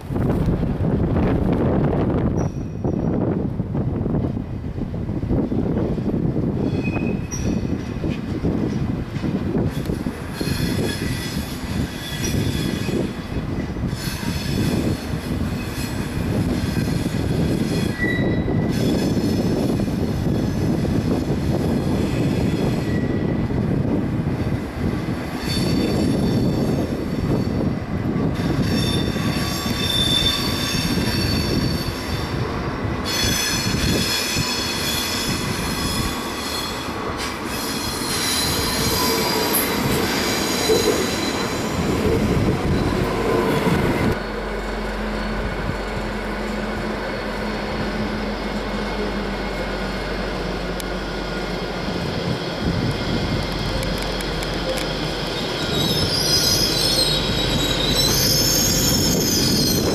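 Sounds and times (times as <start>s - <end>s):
train wheels squealing: 2.2s - 3.3s, 6.6s - 8.2s, 9.6s - 23.5s, 25.3s - 32.4s, 33.0s - 46.0s, 51.0s - 59.9s.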